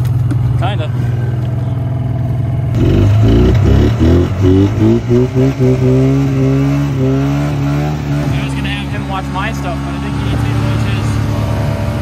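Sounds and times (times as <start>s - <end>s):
snowmobile engine revving: 2.7s - 12.0s.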